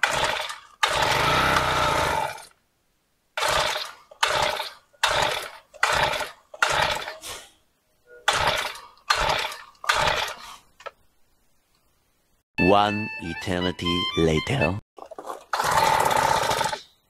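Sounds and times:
small engine pull-start cranking: 0.0 - 2.5, 3.4 - 7.2, 8.3 - 10.4, 15.2 - 16.9.

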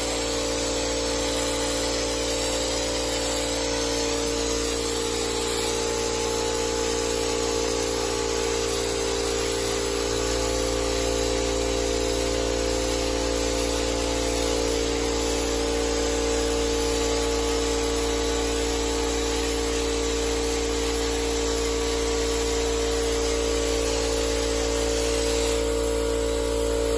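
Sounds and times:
spray gun air hiss: 0.0 - 26.9
steady hum: 21.4 - 26.9.

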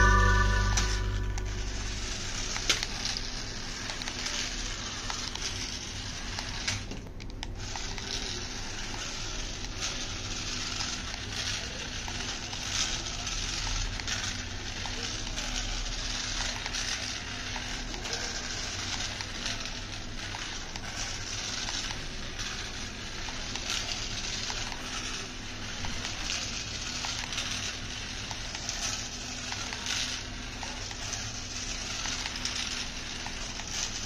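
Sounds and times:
toy car wheels rolling on concrete: 0.0 - 34.0.

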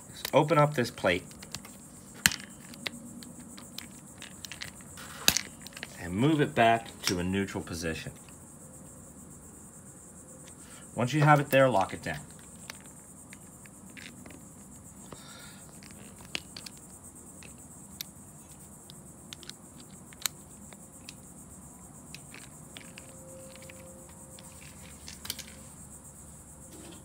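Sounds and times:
screwdriver clicking on screws: 19.3 - 21.2.

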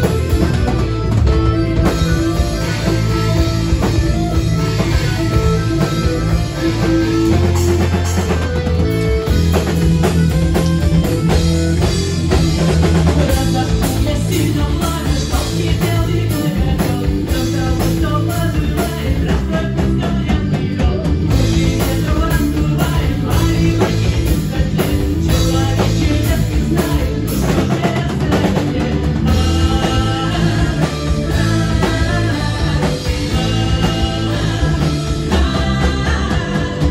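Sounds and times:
live rock band playing: 0.0 - 36.9
woman singing into a microphone: 21.6 - 36.9.

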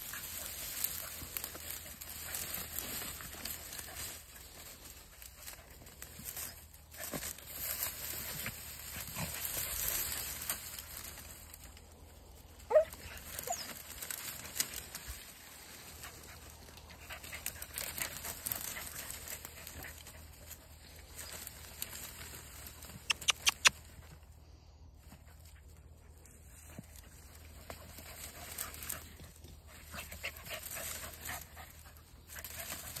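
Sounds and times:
dog yelping: 12.7 - 13.8.

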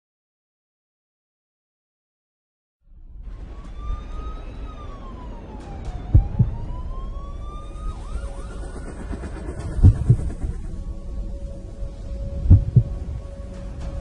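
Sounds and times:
low rumble: 2.9 - 14.0
wailing siren-like tone: 3.2 - 14.0
loud thumps: 12.5 - 13.0.

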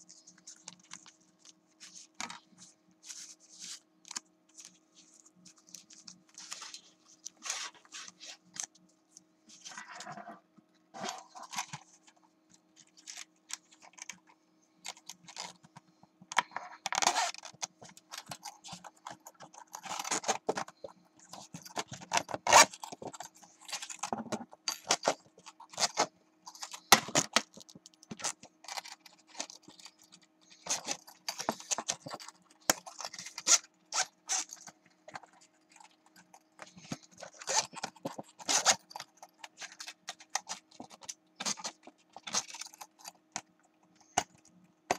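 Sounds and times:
plastic cd case clicks and rustles: 16.4 - 36.0, 36.6 - 44.4.

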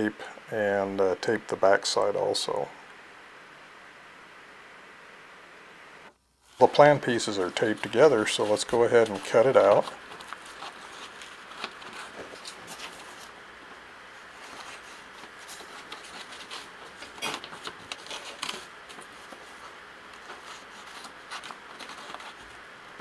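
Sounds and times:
paper rustling: 6.6 - 13.4, 14.1 - 23.0.

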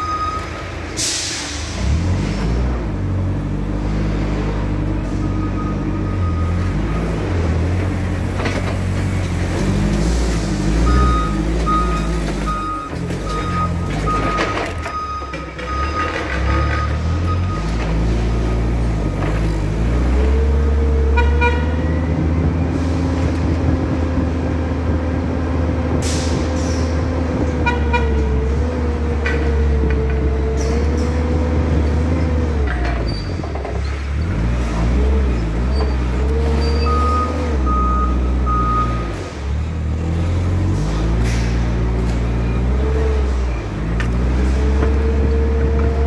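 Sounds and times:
high beep: 0.0 - 0.5
forklift engine rumble: 0.0 - 46.0.

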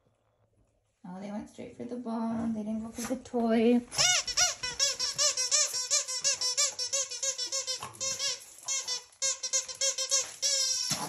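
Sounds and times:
dog toy squeaking: 4.0 - 11.0.

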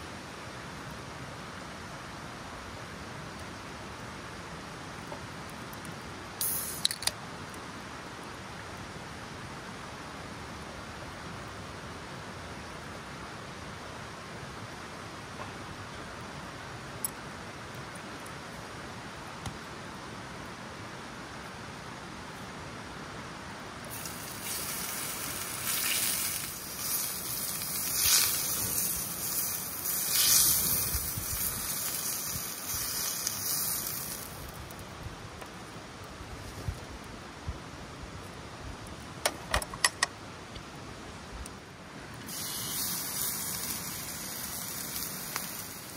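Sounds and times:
soft background hiss: 0.0 - 45.9
meat sizzling in a skillet: 6.4 - 7.0, 23.9 - 34.5, 42.3 - 45.9
can opening hiss: 6.4 - 7.2, 23.9 - 34.6, 42.2 - 45.9.

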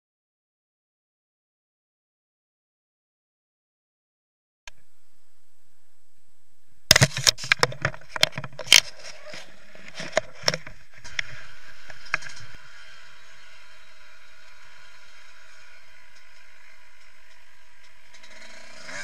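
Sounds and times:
muffled motorbike engine: 6.9 - 19.0.

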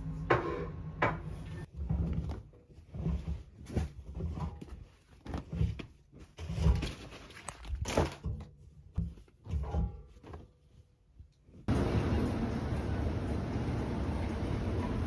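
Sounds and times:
fabric rustling: 1.6 - 11.7.

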